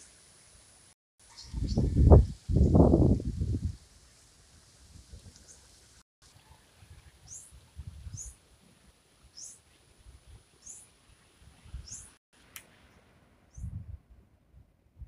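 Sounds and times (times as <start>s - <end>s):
bird chirping: 1.3s - 1.9s
wind gusting on microphone: 1.3s - 3.9s, 7.5s - 8.3s, 11.4s - 12.1s, 13.5s - 15.0s.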